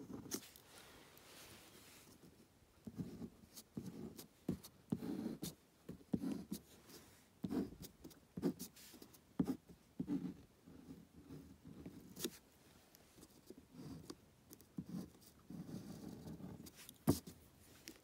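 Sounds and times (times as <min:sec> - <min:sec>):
pen scratching on paper: 0:02.8 - 0:12.4, 0:13.2 - 0:17.4.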